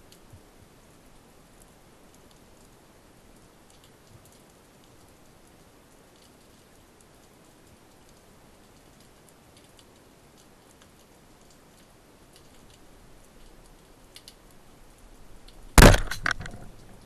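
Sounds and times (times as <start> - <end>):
faint ticks: 0.0 - 1.0, 1.6 - 15.6
sharp knock: 15.8 - 16.6
speargun crack: 15.8 - 16.8.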